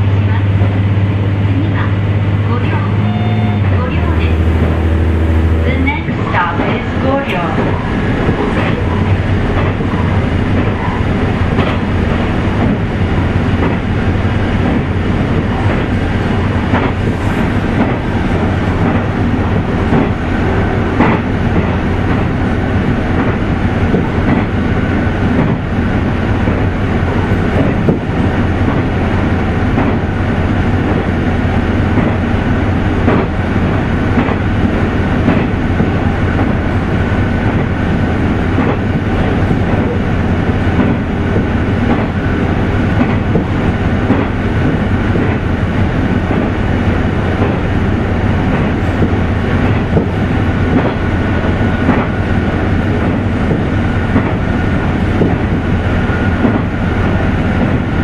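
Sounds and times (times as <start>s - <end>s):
low engine drone: 0.0s - 58.0s
wheel-on-rail rumble: 0.0s - 58.0s.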